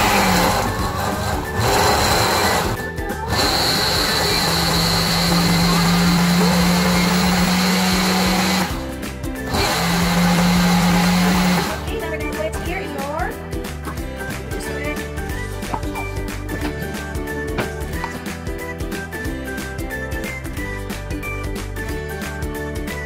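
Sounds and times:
blender motor whining: 0.0 - 11.8.

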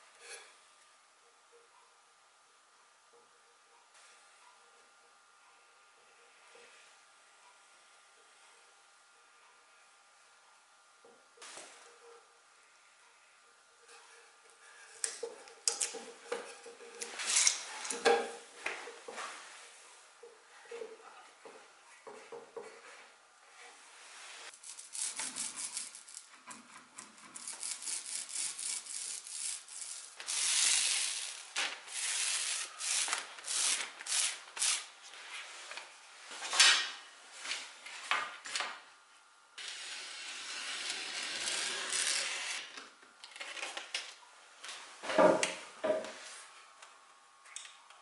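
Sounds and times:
roller spreading glue: 23.9 - 34.9, 39.6 - 42.7.

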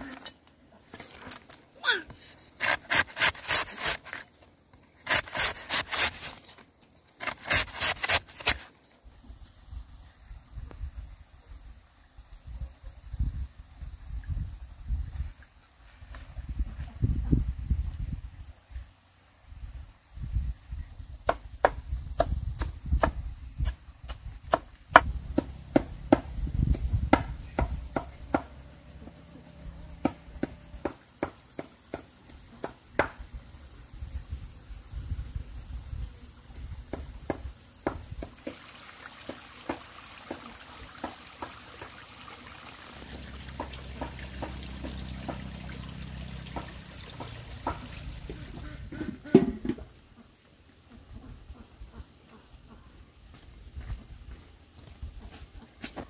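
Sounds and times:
insects chirring: 0.0 - 56.0
sharp knocks: 24.5 - 28.6.

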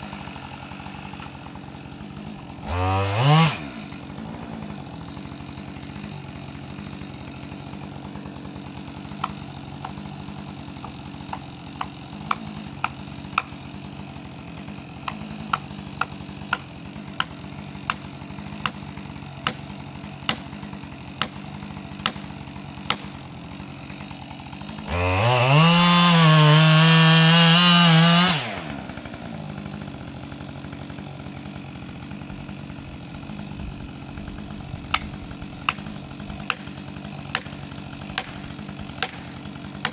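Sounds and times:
chainsaw idling: 0.0 - 39.9
chainsaw revving: 0.0 - 39.9.

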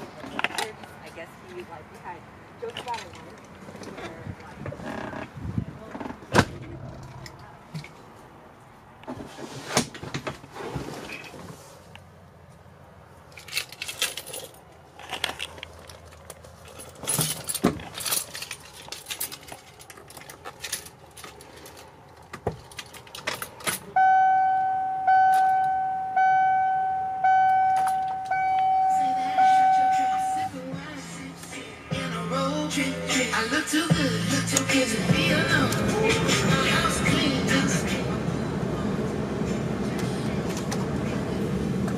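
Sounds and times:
keys jangling: 13.3 - 22.0, 22.6 - 23.8
dashboard warning chime: 23.9 - 30.6.

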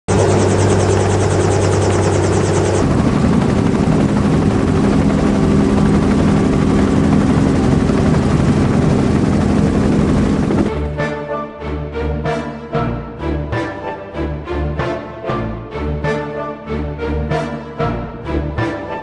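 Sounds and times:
fast high pulsing: 0.1 - 10.7
helicopter engine and rotor: 0.1 - 12.6.

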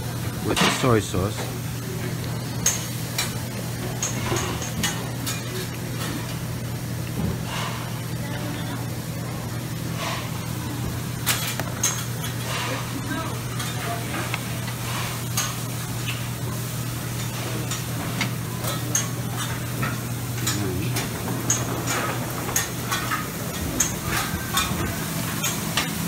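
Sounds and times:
food frying hiss: 0.0 - 26.0
dishes and utensils clinking: 0.4 - 1.0, 11.2 - 16.2, 17.1 - 26.0.

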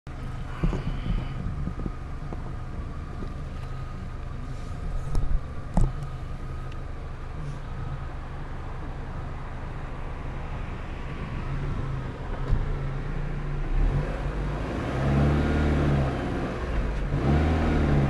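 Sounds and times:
faint steady whine: 0.1 - 13.6
steady low rumble: 0.1 - 15.0.

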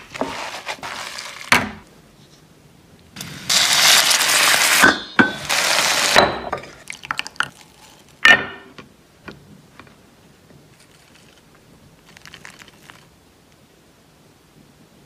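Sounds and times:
water sizzling in hot pan: 3.2 - 8.2
dishware clink: 4.8 - 5.5.

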